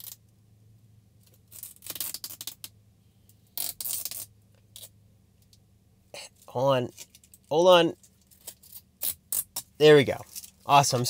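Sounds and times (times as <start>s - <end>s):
plastic film peeling and crackling: 1.4s - 2.7s.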